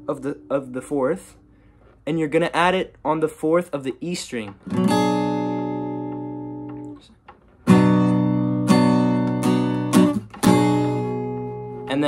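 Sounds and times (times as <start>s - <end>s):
acoustic guitar chord strummed: 0.0s - 1.8s, 4.6s - 7.0s, 7.6s - 12.0s.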